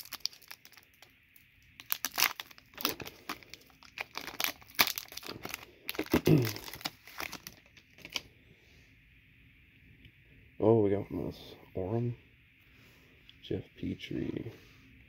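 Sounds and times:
foil wrapper crinkling: 0.0s - 1.1s, 1.7s - 8.2s.

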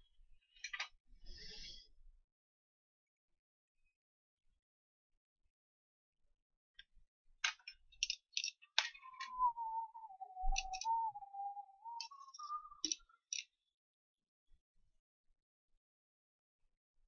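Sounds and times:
wavering tone: 8.8s - 13.3s.

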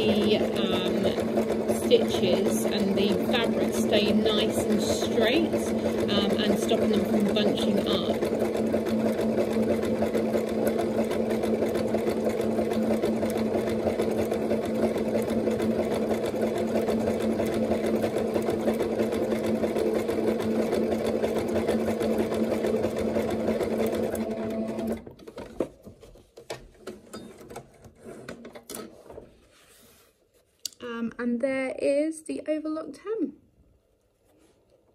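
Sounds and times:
sewing machine running: 0.0s - 25.6s.

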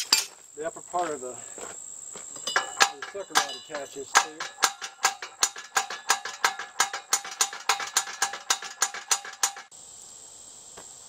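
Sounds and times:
crickets chirping: 0.0s - 11.0s
hand winch ratchet clicking: 2.5s - 9.7s.

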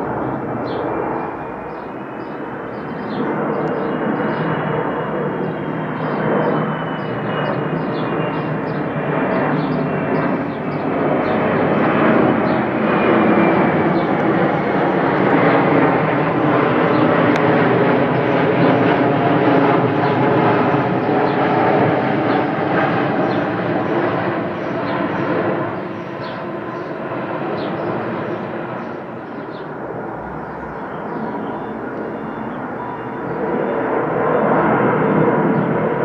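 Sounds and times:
jet airliner passing overhead: 0.0s - 36.0s
high engine whine: 28.3s - 34.2s.

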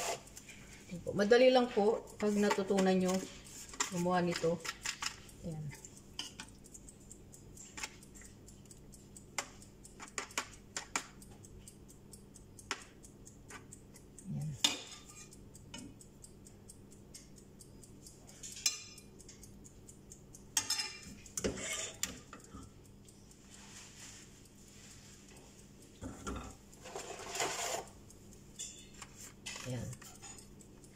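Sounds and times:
metal spoons clinking on glass dishes: 14.6s - 15.3s, 18.5s - 19.0s, 20.6s - 22.3s, 28.6s - 29.6s.

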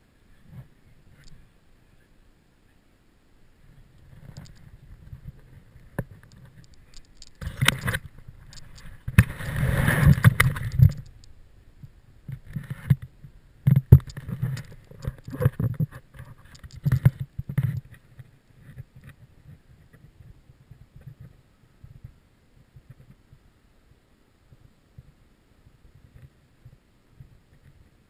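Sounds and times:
camera handling rustling: 5.9s - 11.3s
sharp knocks and clicks: 13.7s - 18.0s.

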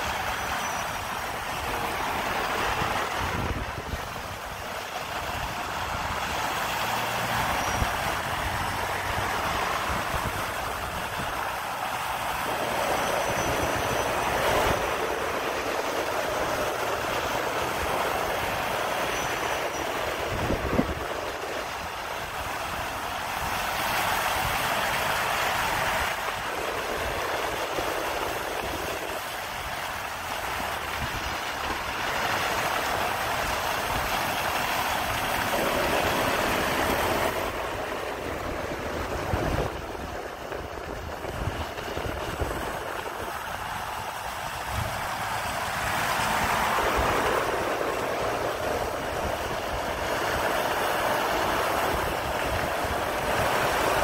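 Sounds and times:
trucks driving past: 0.0s - 54.0s.

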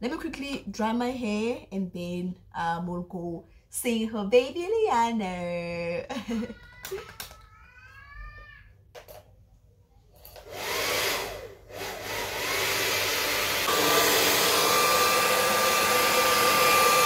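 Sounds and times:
hair dryer blowing: 10.4s - 17.0s.

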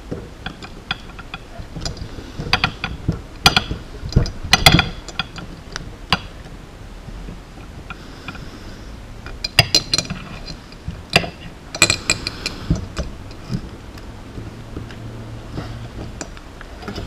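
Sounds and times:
small metal clicks and clinks: 9.4s - 12.6s.

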